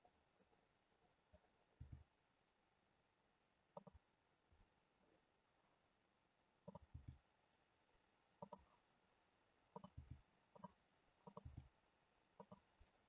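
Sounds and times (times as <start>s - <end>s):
computer mouse clicking: 3.8s - 4.0s, 6.7s - 7.2s, 8.4s - 8.7s, 9.8s - 11.7s, 12.4s - 12.7s.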